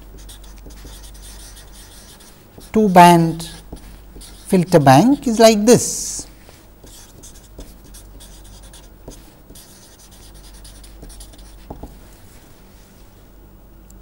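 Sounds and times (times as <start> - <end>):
marker scratching on paper: 0.0 - 4.8, 6.4 - 12.0.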